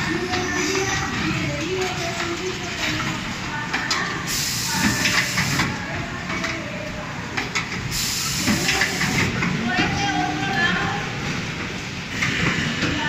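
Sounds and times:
compressed air hissing: 0:04.3 - 0:05.7, 0:07.9 - 0:09.3.

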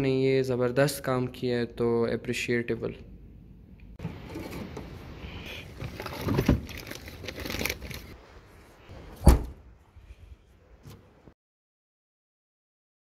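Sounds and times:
rustling handling noise: 0:04.0 - 0:09.2
sharp thump: 0:09.2 - 0:09.6.

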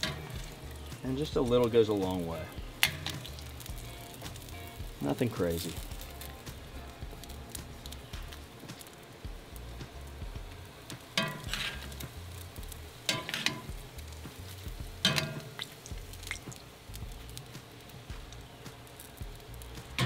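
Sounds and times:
metal tongs clattering on grill: 0:00.0 - 0:08.0, 0:10.9 - 0:16.7
bacon sizzling in a pan: 0:00.0 - 0:20.0.

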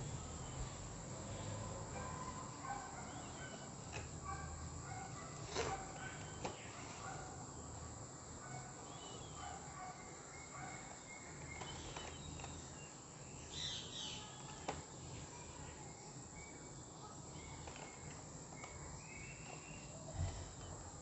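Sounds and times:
bird chirps: 0:08.8 - 0:14.4, 0:17.4 - 0:20.1.

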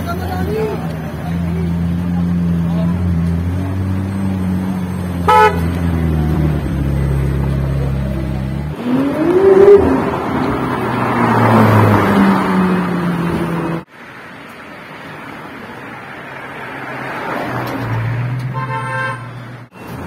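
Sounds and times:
street traffic: 0:00.0 - 0:20.0
car revving and accelerating: 0:00.5 - 0:13.9.

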